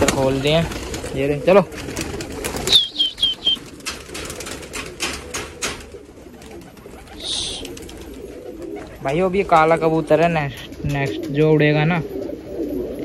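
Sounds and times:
pigeon wings flapping: 0.0 - 11.4
high falling chirps: 2.6 - 3.7
rush of wing noise: 6.3 - 9.3.

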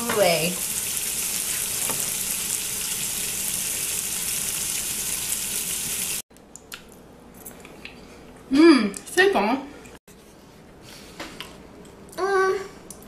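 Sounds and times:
food sizzling in skillet: 0.0 - 6.2.

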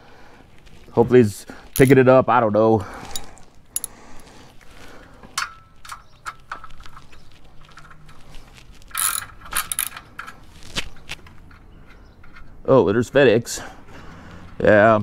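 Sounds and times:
ratchet wrench clicking: 8.9 - 10.3.

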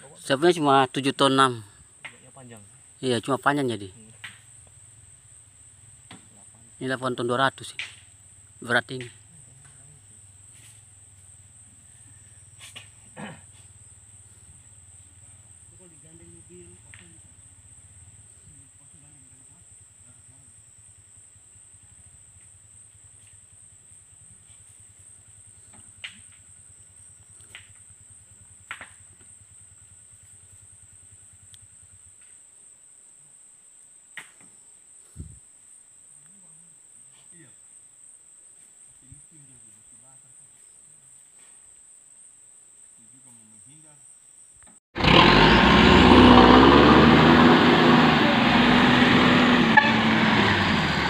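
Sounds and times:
heavy vehicle engine idling: 45.0 - 51.0.

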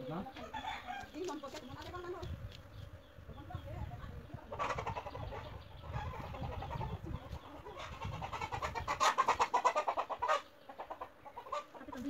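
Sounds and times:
chicken clucking: 4.4 - 12.0.

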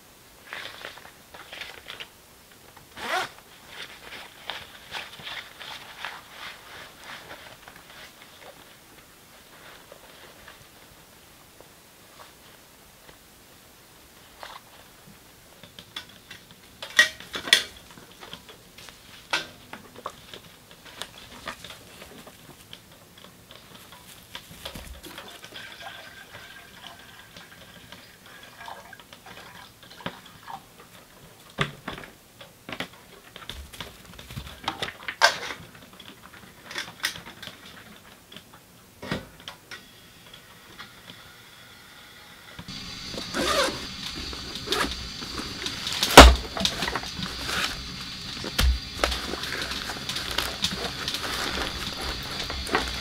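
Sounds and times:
water being poured: 25.1 - 30.6.

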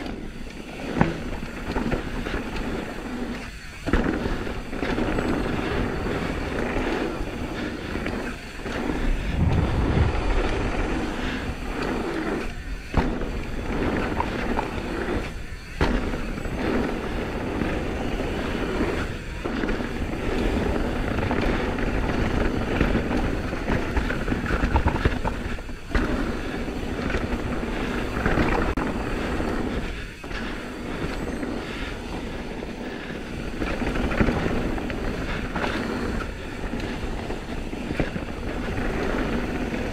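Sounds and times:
bike rattling: 0.0 - 39.9
tyres rolling over dirt: 0.0 - 39.9
wind on microphone: 4.6 - 39.9.

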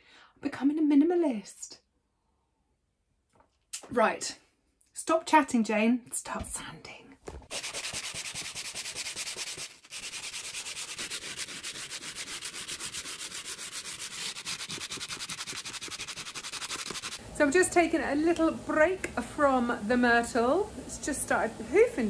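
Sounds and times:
sandpaper scraping on wood: 7.5 - 17.2.

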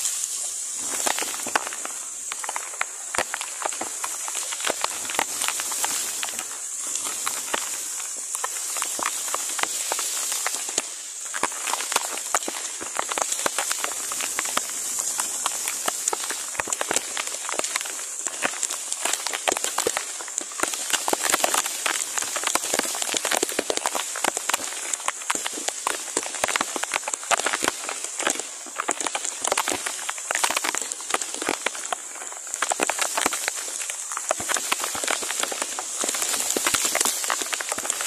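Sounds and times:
heavy rain on foliage: 0.0 - 38.0.

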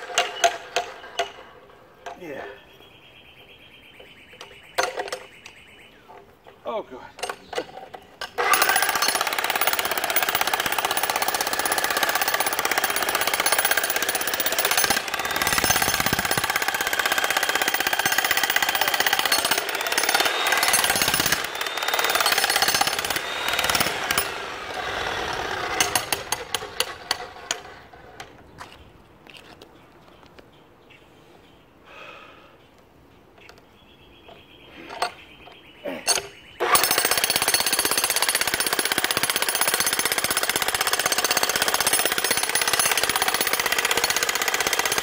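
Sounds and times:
jackhammer hammering concrete: 8.4 - 27.8, 36.6 - 45.0.

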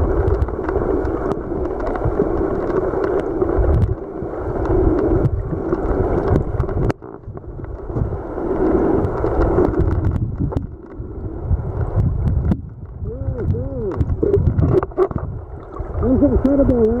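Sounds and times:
muffled underwater stream rushing: 0.0 - 17.0
heavy low rumble: 5.2 - 17.0.

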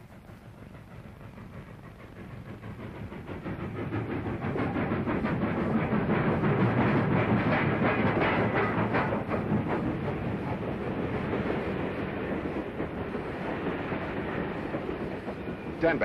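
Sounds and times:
steam locomotive exhaust: 0.0 - 16.0
train wheels clattering on rails: 0.0 - 16.0.

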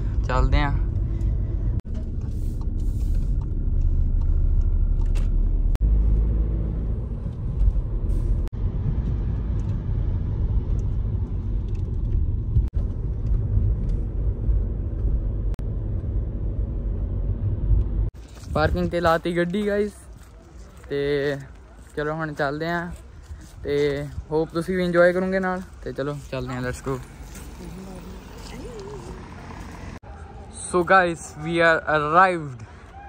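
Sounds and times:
car interior rumble: 0.0 - 19.2.

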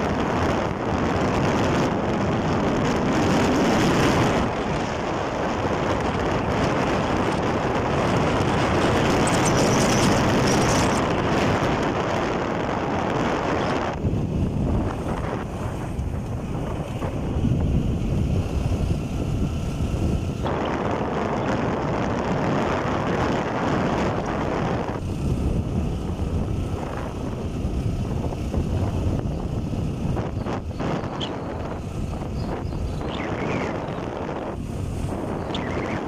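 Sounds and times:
motorcycle engine: 0.0 - 36.0
road noise: 0.0 - 36.0
wind rushing over microphone: 0.0 - 36.0.

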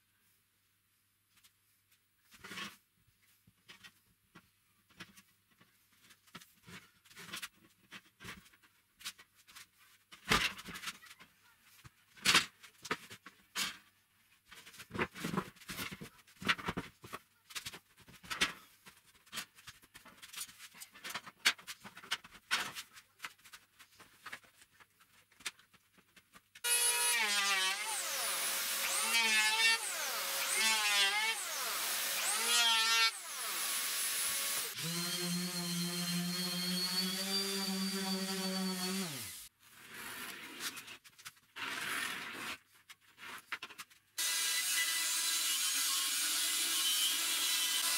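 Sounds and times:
power tool running: 26.7 - 39.5, 44.2 - 47.9.

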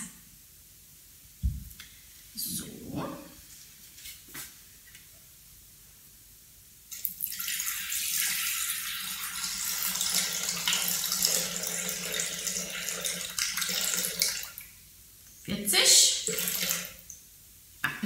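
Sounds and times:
water pouring into a steel bowl: 7.2 - 14.6.

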